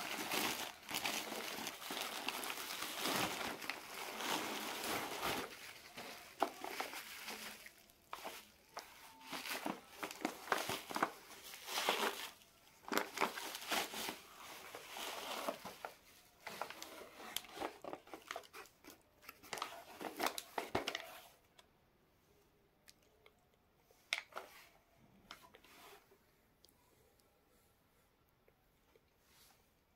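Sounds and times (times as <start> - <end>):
bubble wrap crinkling: 0.0 - 21.2.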